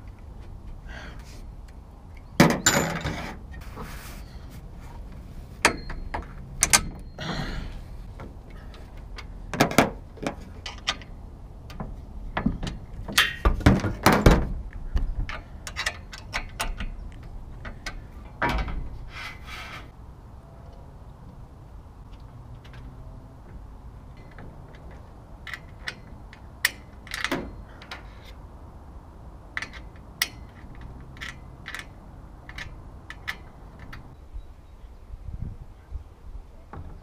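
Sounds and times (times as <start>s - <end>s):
knocks and thunks of metal framing: 2.3s - 3.9s, 5.5s - 19.9s, 22.6s - 28.4s, 29.5s - 34.2s
scraping: 17.7s - 20.0s.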